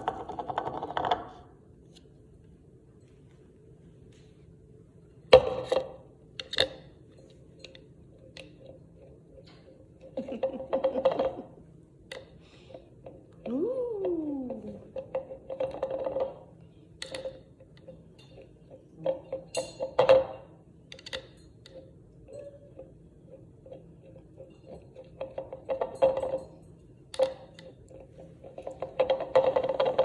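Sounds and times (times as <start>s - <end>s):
tumbler rattling on stone: 14.9s - 30.0s.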